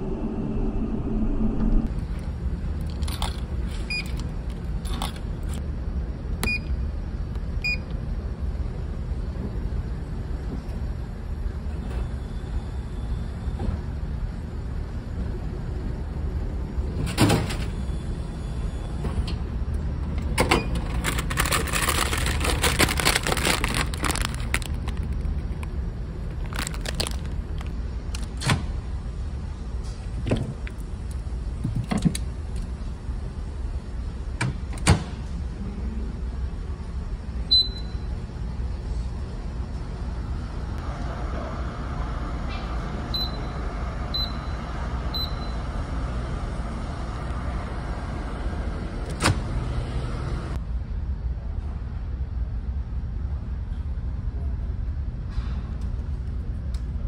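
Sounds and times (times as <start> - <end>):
ship engines rumbling: 0.0 - 3.4
plastic clattering: 20.7 - 25.7, 26.3 - 27.7.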